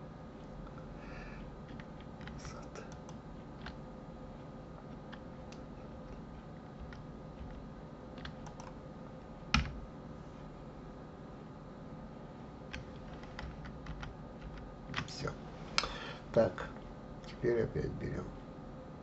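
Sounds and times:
faint steady hum: 0.0 - 19.0
keyboard keystrokes: 8.2 - 8.8, 12.7 - 15.2.

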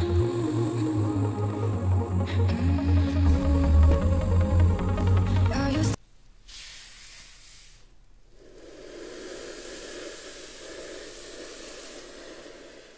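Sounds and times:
electronic music: 0.0 - 6.0
steady hiss: 6.4 - 12.9.

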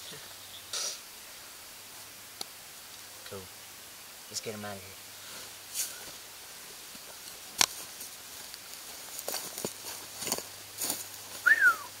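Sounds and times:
clothing and brush rustling: 5.2 - 11.5
footsteps through grass: 5.5 - 12.0.

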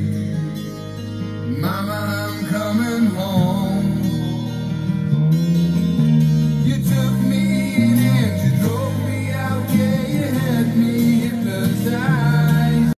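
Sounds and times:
guitar: 0.0 - 12.9
rock ballad on speakers: 0.0 - 12.9
person singing: 1.4 - 4.8, 6.5 - 12.9.

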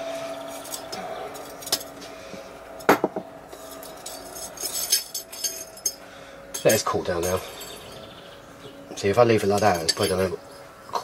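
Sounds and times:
metal tongs clinking on anvil: 3.6 - 8.0, 9.4 - 11.0.

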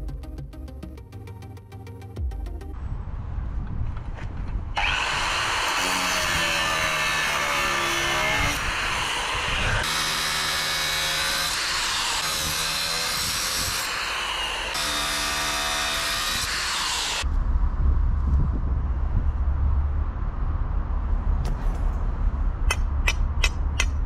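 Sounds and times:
angle grinder cutting steel: 4.8 - 17.3.

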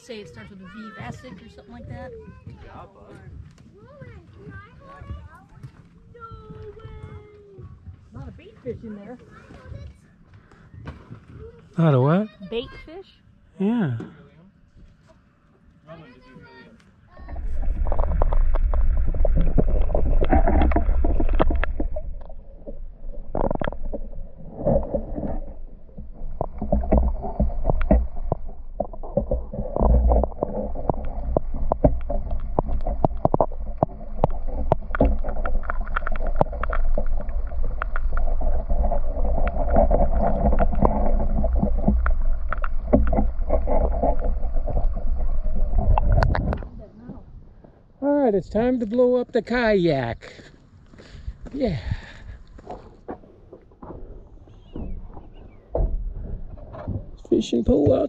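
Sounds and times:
underwater rumble of moving water: 16.0 - 49.1, 51.2 - 58.0
small underwater clicks and knocks: 16.8 - 47.8, 52.3 - 58.0.

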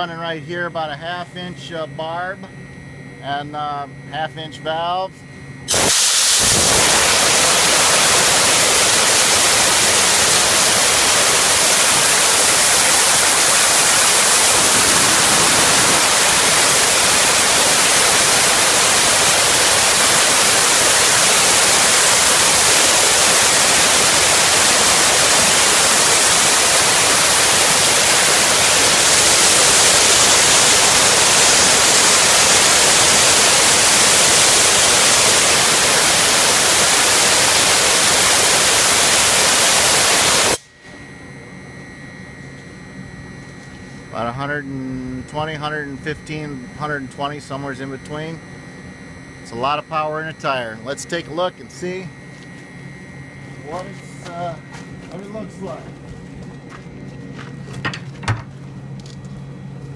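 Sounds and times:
steam hissing from valve: 5.7 - 40.6.

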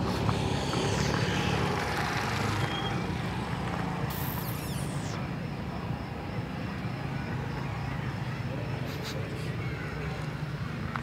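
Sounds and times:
vehicle engine humming: 0.0 - 11.0
short high hiss: 4.1 - 5.2.

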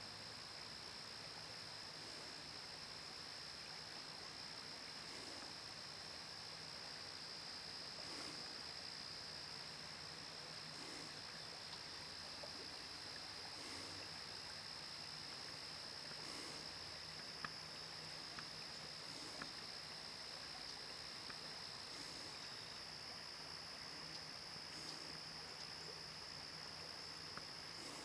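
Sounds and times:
quiet moving water: 0.0 - 28.0
tiny ticks: 17.1 - 17.6, 20.6 - 21.4.

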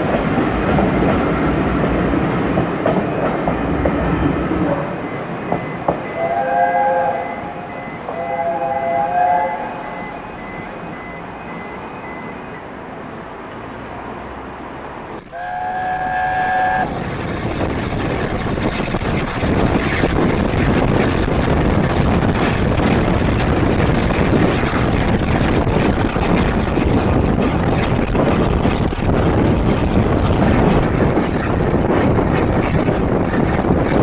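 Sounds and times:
steam locomotive chime whistle: 5.1 - 11.1, 15.3 - 16.9
wind over microphone: 15.1 - 34.0
steam engine running at speed: 15.2 - 34.0.

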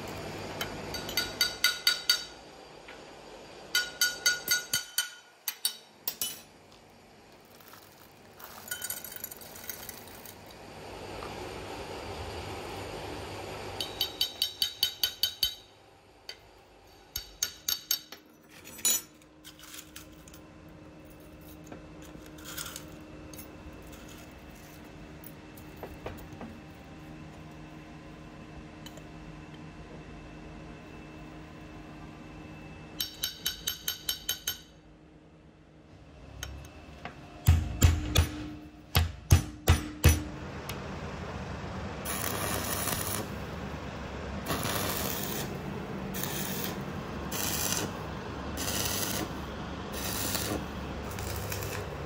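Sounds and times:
steel parts clinking: 8.4 - 10.3.

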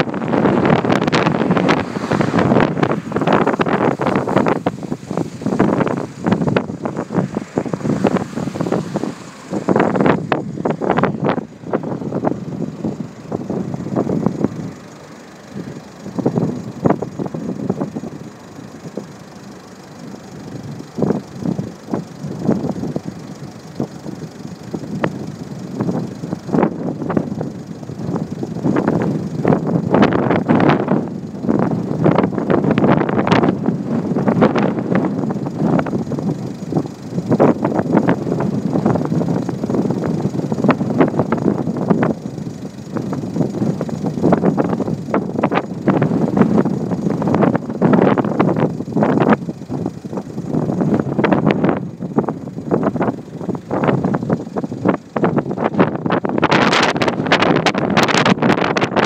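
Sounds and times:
heavy surf: 0.0 - 15.6
strong wind buffeting microphone: 0.0 - 19.1, 19.7 - 59.0.

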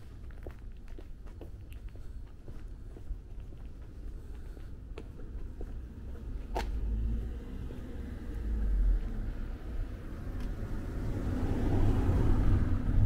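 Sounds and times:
low rumble: 5.8 - 13.0
car driving past: 5.9 - 13.0.

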